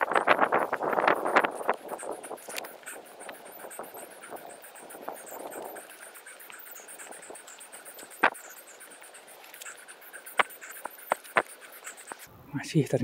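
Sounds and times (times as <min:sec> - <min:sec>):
footsteps on trail: 0:00.0 - 0:12.3
insects chirping: 0:00.0 - 0:13.0.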